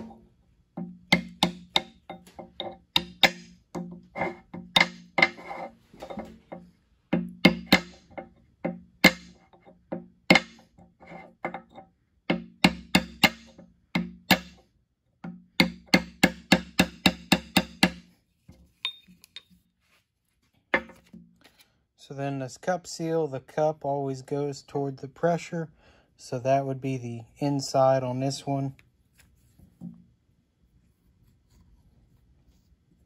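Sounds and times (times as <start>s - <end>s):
hammer striking metal pipe: 0.8s - 6.4s, 7.1s - 14.6s, 15.5s - 18.1s.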